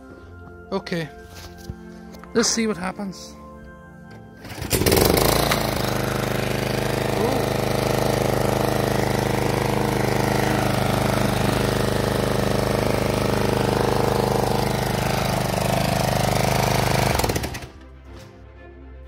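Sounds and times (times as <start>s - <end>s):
mower petrol engine running: 4.4s - 18.0s.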